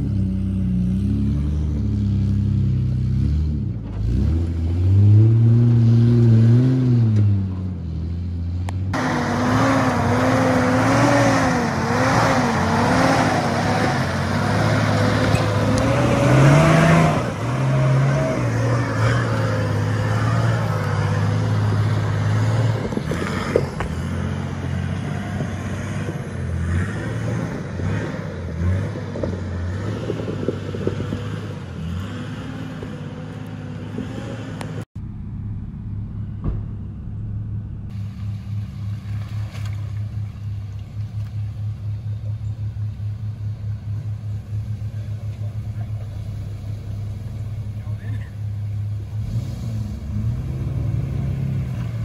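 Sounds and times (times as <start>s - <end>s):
engine revving under load: 0.0s - 38.2s, 42.2s - 52.0s
engine running with steady throb: 34.6s - 51.2s.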